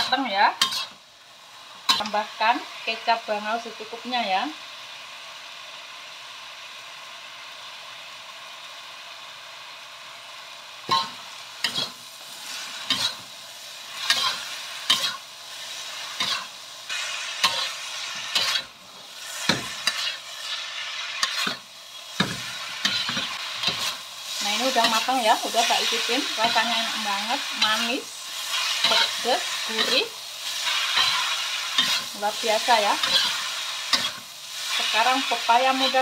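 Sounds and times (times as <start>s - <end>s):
metal spatula scraping a wok: 0.0s - 1.0s, 10.9s - 36.0s
vegetables sizzling in a wok: 0.0s - 36.0s.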